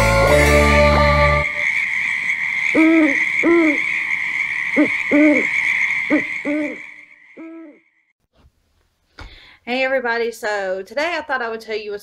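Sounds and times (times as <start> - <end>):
owl hooting: 1.4 - 7.8.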